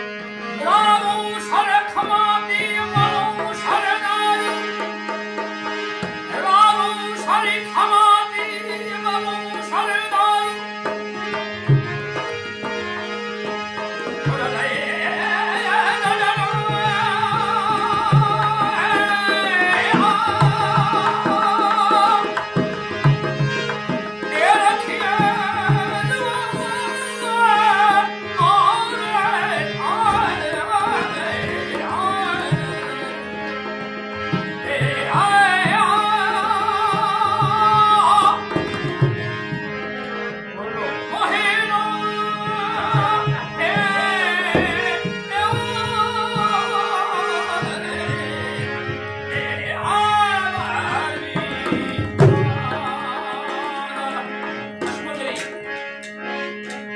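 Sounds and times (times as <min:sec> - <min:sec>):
harmonium drone: 0:00.0 - 0:56.9.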